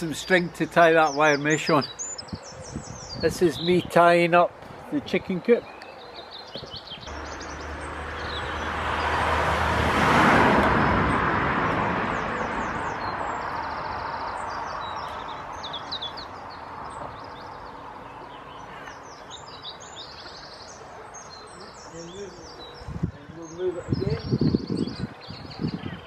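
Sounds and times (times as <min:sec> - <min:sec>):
birds chirping: 0:00.0 - 0:26.0
vehicle passing by: 0:07.1 - 0:20.0.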